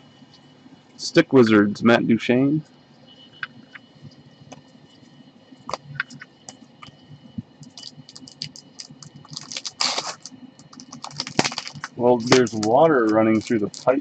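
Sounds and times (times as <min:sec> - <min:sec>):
cards rustling: 0:07.8 - 0:14.0
trading cards clicking on desk: 0:10.2 - 0:13.9.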